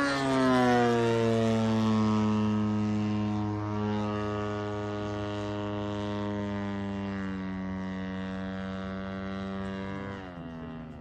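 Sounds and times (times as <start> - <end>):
model airplane engine drone: 0.0 - 11.0.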